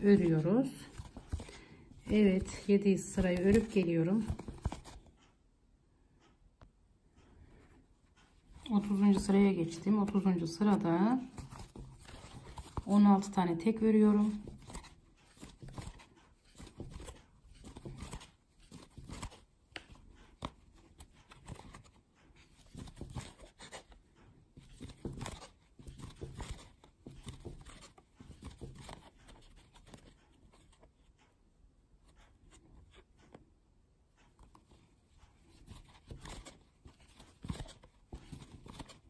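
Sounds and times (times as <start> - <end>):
crochet hook scratching yarn: 0.0 - 1.4, 2.0 - 5.3, 8.2 - 31.4
hands handling fabric: 0.0 - 5.3, 7.6 - 31.4, 34.2 - 39.0.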